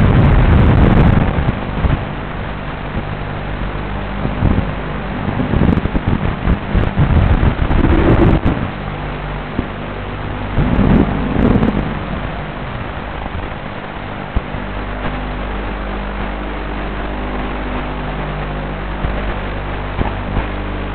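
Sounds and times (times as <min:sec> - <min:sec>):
wind noise on microphone: 0:00.0 - 0:20.9
drone motors buzzing: 0:04.2 - 0:08.8, 0:09.5 - 0:17.5.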